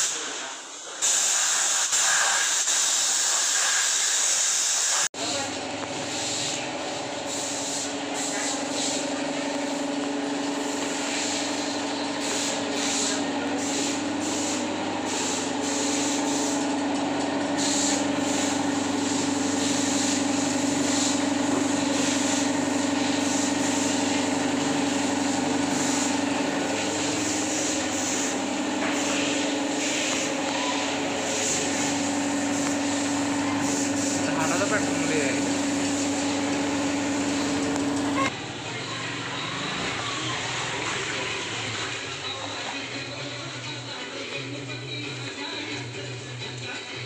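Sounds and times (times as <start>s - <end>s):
machine hum: 5.2s - 38.3s.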